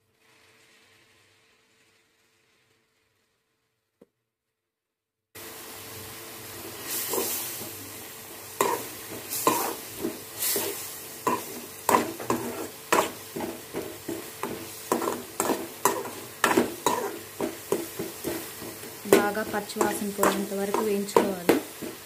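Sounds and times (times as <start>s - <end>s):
frying sizzle: 0.0s - 3.9s, 5.4s - 22.0s
metal spoon scraping pan: 8.6s - 22.0s.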